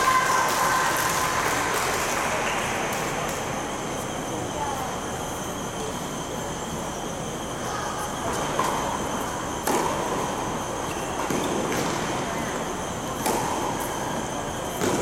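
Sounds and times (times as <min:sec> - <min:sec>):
background hum: 0:00.0 - 0:15.0
faint high whine: 0:00.0 - 0:15.0
tennis ball struck by racquets: 0:09.6 - 0:10.2, 0:13.2 - 0:13.9, 0:14.7 - 0:15.0.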